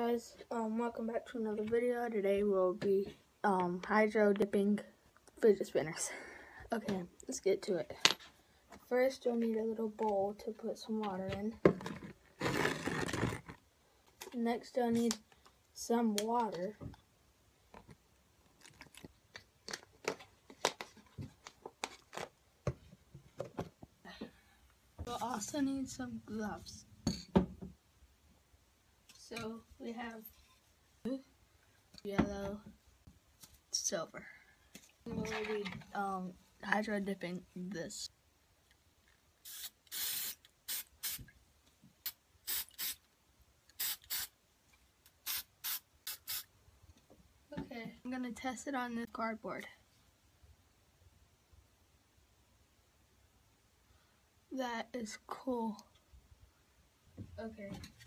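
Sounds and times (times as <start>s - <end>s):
plastic bottle crinkling: 11.8s - 13.6s, 18.6s - 22.3s
spray paint can hissing: 39.4s - 41.2s, 42.0s - 43.0s, 43.8s - 44.3s, 45.2s - 46.5s.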